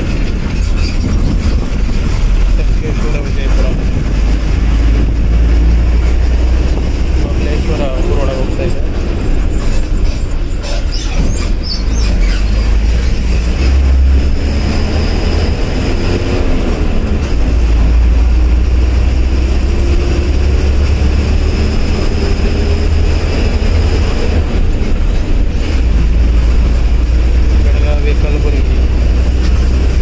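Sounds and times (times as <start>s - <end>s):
vehicle body rattling: 0.0s - 19.2s, 19.9s - 30.0s
bus engine deep rumble: 0.0s - 30.0s
short high squeaks: 9.6s - 13.5s.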